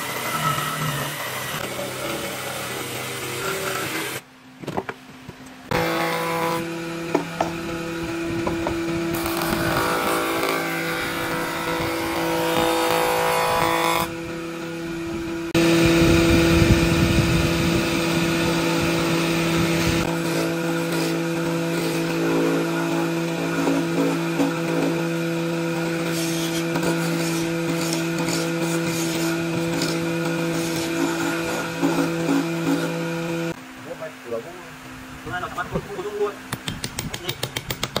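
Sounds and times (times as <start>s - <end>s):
machine cutting wood: 0.0s - 4.2s, 5.7s - 33.6s
woodworking machines motor hum: 0.0s - 34.8s.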